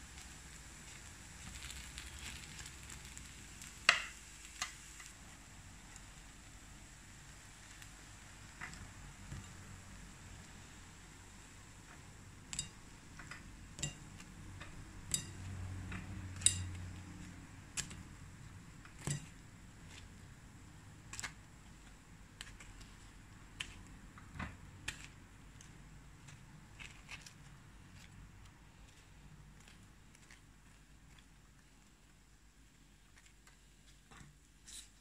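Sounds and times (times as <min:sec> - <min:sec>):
wooden skewer tapping grill pan: 0:12.5 - 0:16.9.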